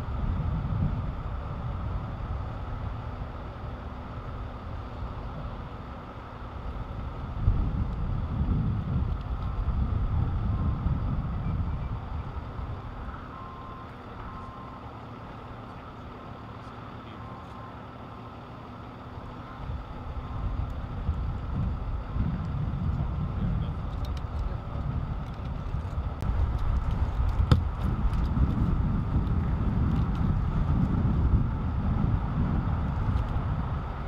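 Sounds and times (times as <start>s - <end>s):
vehicle engine idling: 0.0s - 34.0s
faint short beeps: 13.0s - 14.9s, 17.0s - 17.8s.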